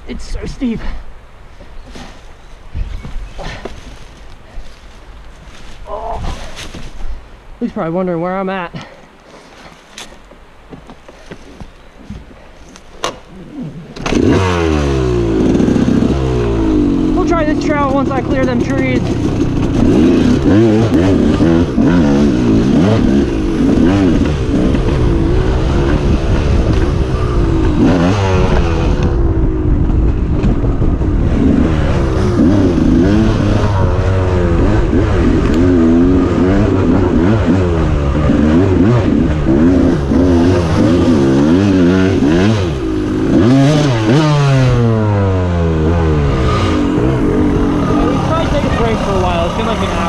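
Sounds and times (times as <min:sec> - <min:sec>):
dirt bike engine revving: 0:13.5 - 0:50.0.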